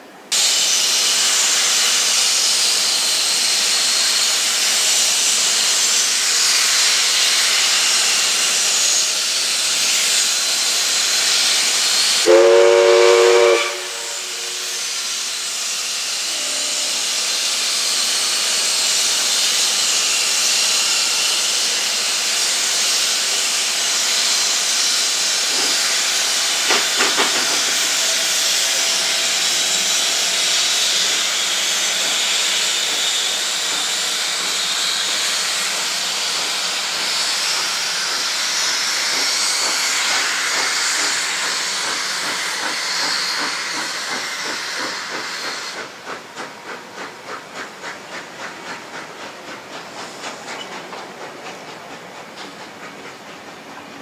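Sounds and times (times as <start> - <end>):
steam locomotive hissing: 0.0 - 54.0
steam chime whistle blast: 12.2 - 15.3, 15.9 - 17.9.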